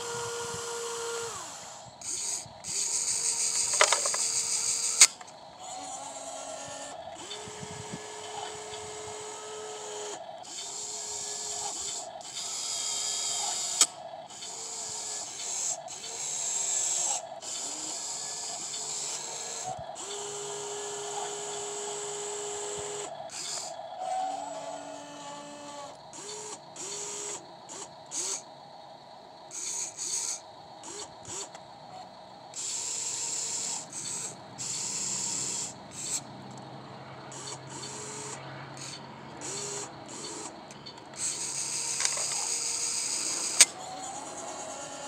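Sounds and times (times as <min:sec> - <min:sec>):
toy excavator motors whirring: 0:00.0 - 0:45.0
sharp click: 0:03.6 - 0:04.3, 0:04.9 - 0:05.4, 0:40.4 - 0:42.5, 0:43.5 - 0:43.8.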